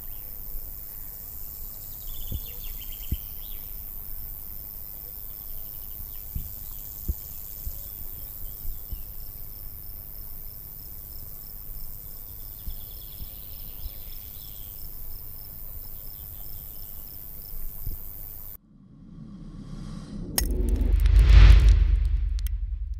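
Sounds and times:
low thumps: 18.7s - 22.9s.

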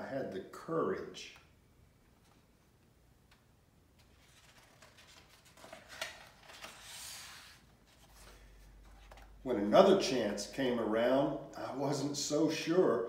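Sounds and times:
book page turning: 4.0s - 9.4s.

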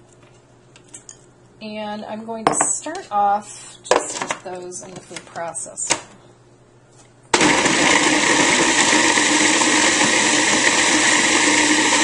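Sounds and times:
food processor running: 7.4s - 12.0s.

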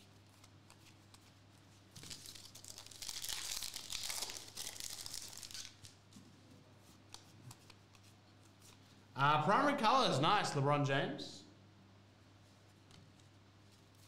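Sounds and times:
foil wrapper crinkling and ripping: 1.9s - 6.0s.

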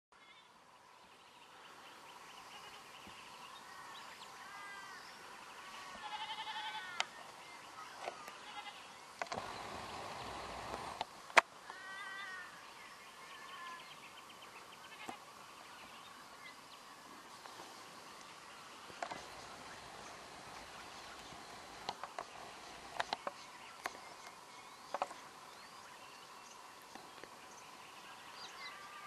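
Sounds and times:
goats bleating: 5.6s - 7.0s, 8.4s - 8.8s.

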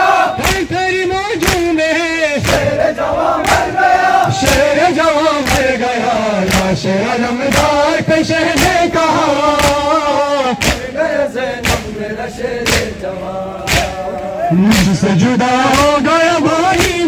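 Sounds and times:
men chanting in unison: 0.0s - 17.0s
chest-beating slaps: 0.4s - 0.8s, 1.4s - 1.8s, 2.4s - 2.8s, 3.4s - 4.8s, 5.4s - 5.8s, 6.4s - 6.8s, 7.5s - 7.8s, 8.5s - 8.9s, 9.6s - 9.9s, 10.6s - 11.0s, 11.6s - 12.0s, 12.6s - 13.0s, 13.6s - 15.0s, 16.7s - 17.0s.

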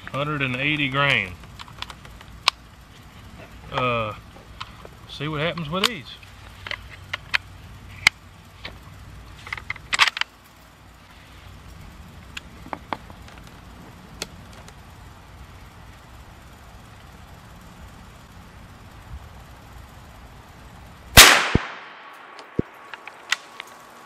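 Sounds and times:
low steady background: 0.0s - 24.0s.

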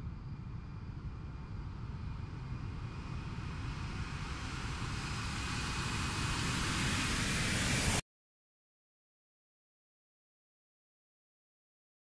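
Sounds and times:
jet engine rushing with whine: 1.4s - 8.0s.

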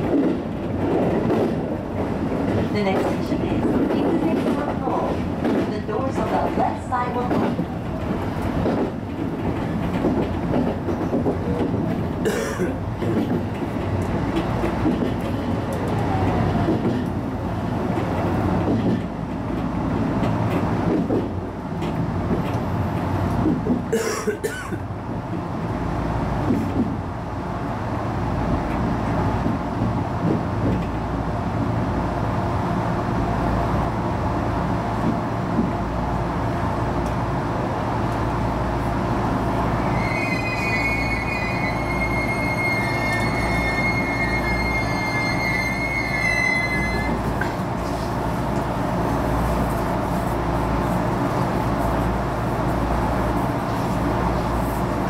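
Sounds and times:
train rumbling on rails: 0.0s - 55.0s
high-pitched wheel squeal: 39.8s - 47.4s.

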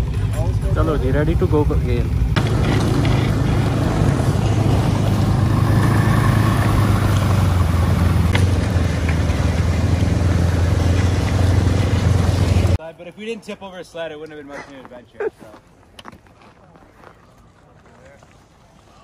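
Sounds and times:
snowmobile engine droning: 0.0s - 12.8s.

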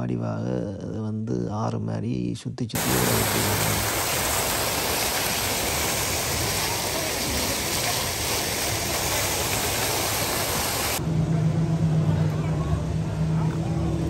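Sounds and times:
fountain water splashing: 2.8s - 11.0s.

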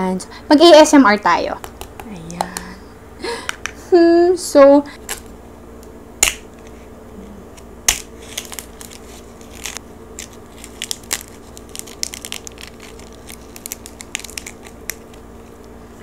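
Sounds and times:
roast pig skin crackling: 7.5s - 16.0s.

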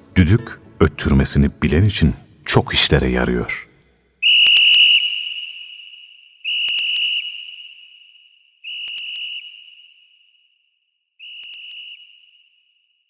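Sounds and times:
high-pitched whistle blasts: 4.2s - 13.0s.

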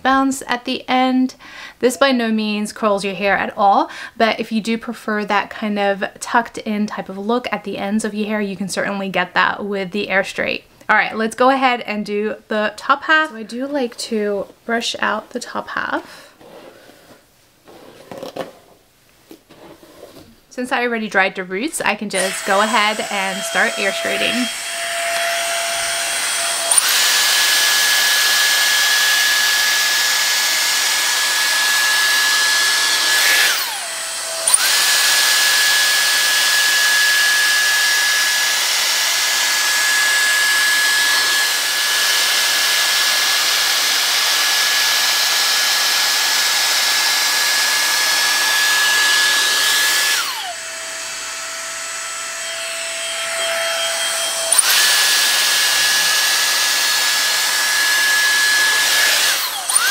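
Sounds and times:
hair dryer motor whine: 22.2s - 59.9s.

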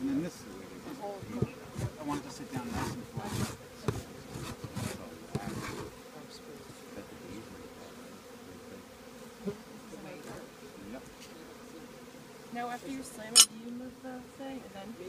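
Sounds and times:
honeybees buzzing: 0.0s - 15.0s
hive tool scraping wood: 0.9s - 6.0s, 12.8s - 13.5s.

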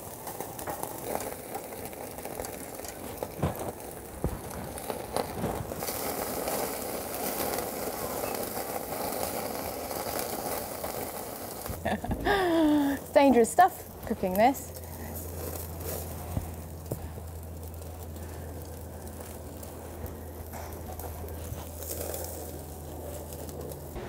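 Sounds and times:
meat sizzling on a grill: 0.0s - 24.0s
woman speaking: 12.5s - 14.8s.

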